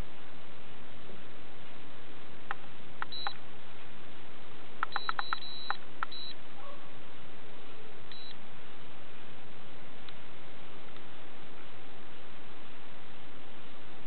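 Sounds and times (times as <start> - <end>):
steady hiss: 0.0 - 14.0
short high electronic beeps: 3.1 - 3.4, 4.9 - 6.4
button clicks: 4.8 - 6.3.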